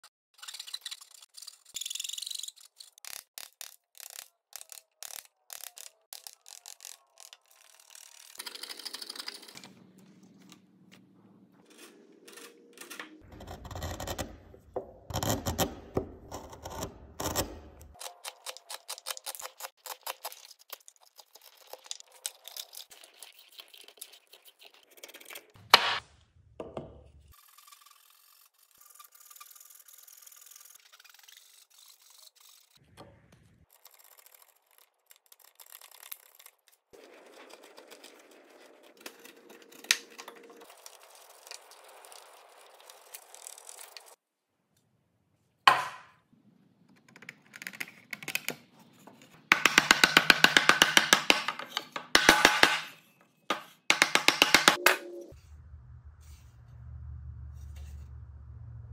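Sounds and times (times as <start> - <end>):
chisel scraping wood: 11.6 - 20.0
wooden mallet tapping: 53.9 - 55.2.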